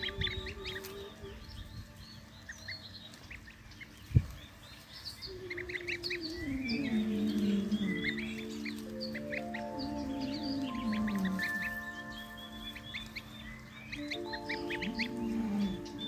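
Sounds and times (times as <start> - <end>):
goslings peeping: 0.0 - 16.0
soft music: 0.0 - 16.0.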